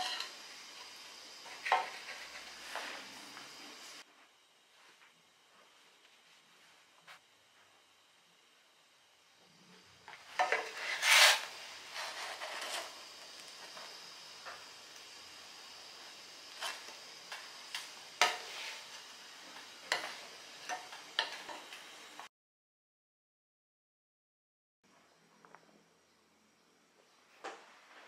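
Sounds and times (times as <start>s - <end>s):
dough hissing in hot pan: 0.0s - 4.0s, 10.2s - 22.3s
wooden spatula scraping a pan: 0.0s - 4.0s, 10.4s - 13.1s, 16.5s - 22.2s
spatula tapping pan: 16.6s - 18.6s, 19.6s - 21.8s.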